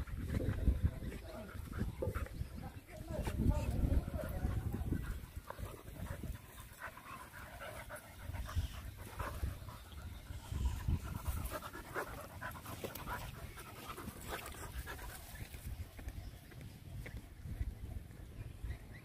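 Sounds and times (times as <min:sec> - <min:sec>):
dogs panting: 0:00.0 - 0:19.0.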